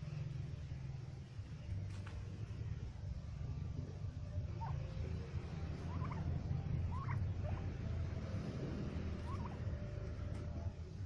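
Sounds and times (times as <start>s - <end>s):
turkeys calling: 4.4s - 8.0s, 9.1s - 10.5s.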